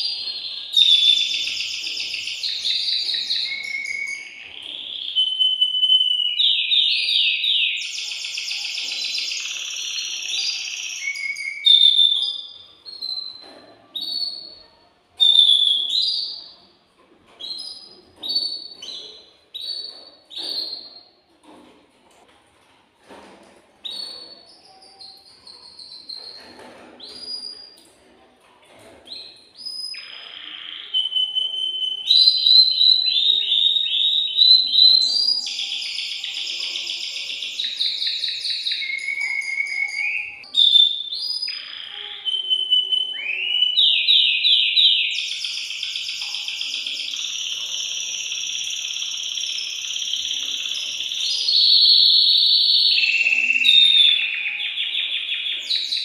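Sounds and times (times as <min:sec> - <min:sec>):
canary singing trills: 0:00.0 - 0:16.7, 0:17.4 - 0:21.2, 0:23.8 - 0:26.4, 0:29.1 - 0:56.0.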